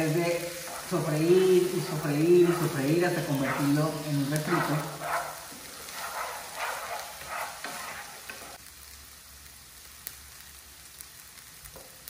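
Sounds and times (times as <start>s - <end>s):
spatula scraping pan: 0.0s - 8.6s
vegetables sizzling in frying pan: 0.0s - 12.0s.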